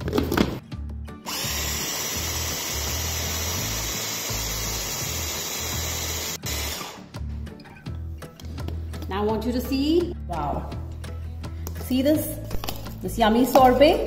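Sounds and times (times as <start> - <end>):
food processor motor running: 1.3 - 7.0.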